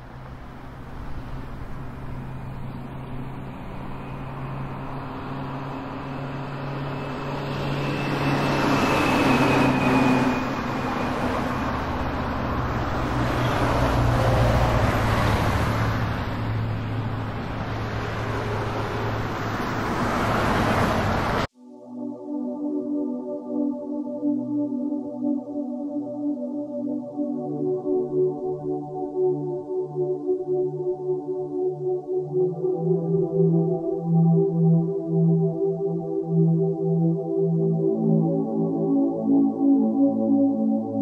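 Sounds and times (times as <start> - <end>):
vehicles passing: 0.0 - 21.5.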